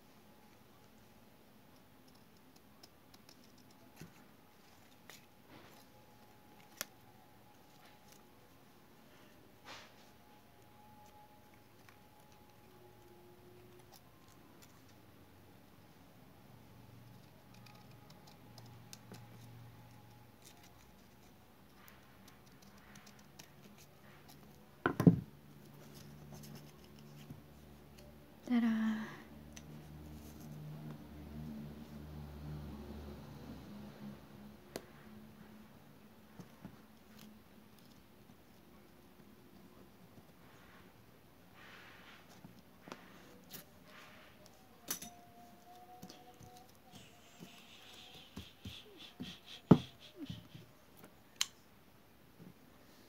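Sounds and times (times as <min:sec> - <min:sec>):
scissors snipping paper: 0:17.0 - 0:24.6, 0:44.4 - 0:50.5.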